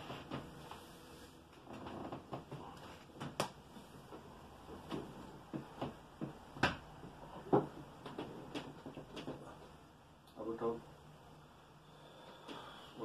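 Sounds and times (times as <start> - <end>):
sofa bed clicks and knocks: 4.6 - 9.5.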